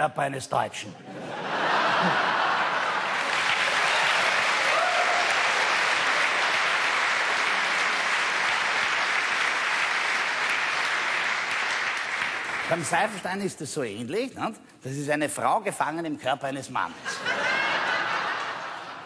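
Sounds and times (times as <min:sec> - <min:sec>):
audience applauding: 0:01.9 - 0:13.4.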